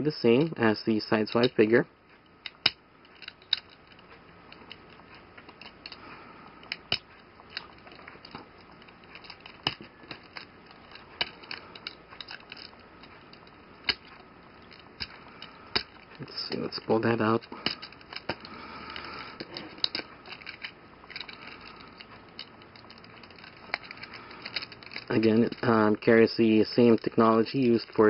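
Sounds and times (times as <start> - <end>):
plastic parts clicking: 2.4 - 28.0.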